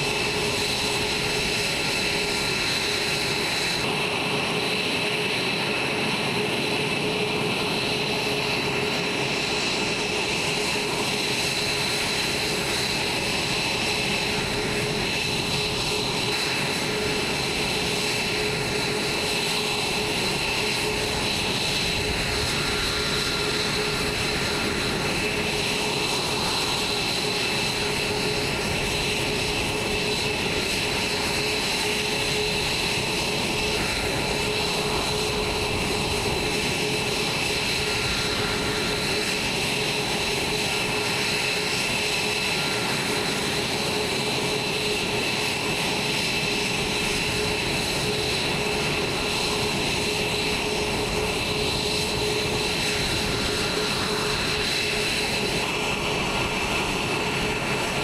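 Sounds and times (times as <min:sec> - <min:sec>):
jet engines idling: 0:00.0 - 0:58.0.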